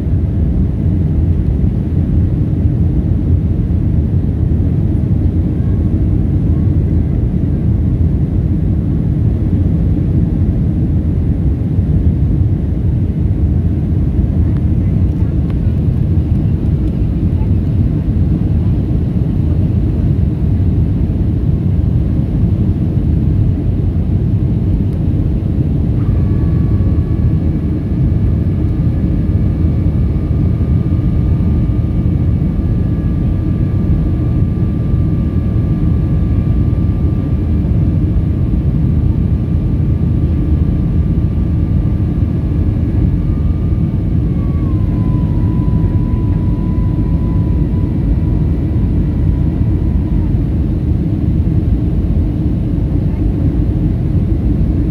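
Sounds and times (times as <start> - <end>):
jet engines rumbling: 0.0 - 54.9
thin whining tones: 43.0 - 50.2.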